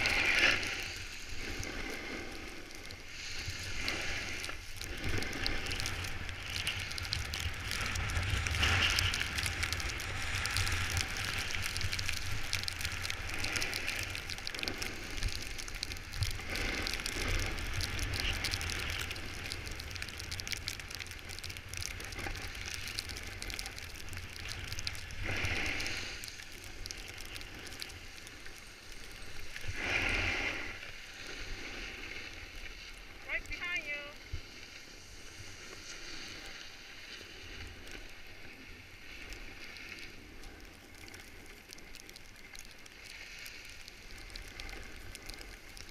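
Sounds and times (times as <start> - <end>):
snowboard scraping over snow: 0.0 - 32.9.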